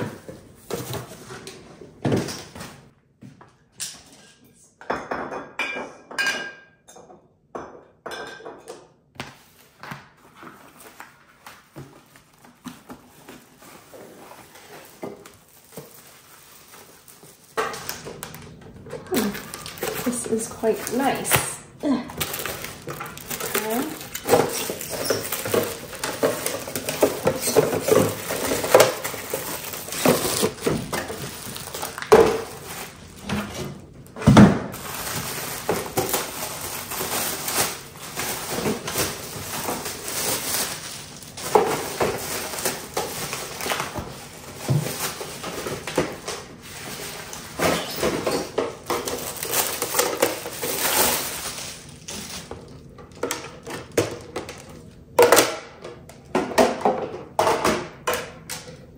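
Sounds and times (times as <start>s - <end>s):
wrapping rustling: 10.2s - 33.8s, 34.7s - 52.9s
plastic bins clacking: 14.4s - 58.9s.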